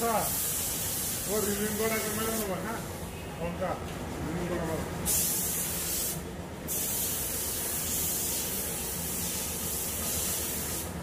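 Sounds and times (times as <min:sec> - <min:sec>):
spray gun hissing: 0:00.0 - 0:02.6, 0:05.1 - 0:11.0.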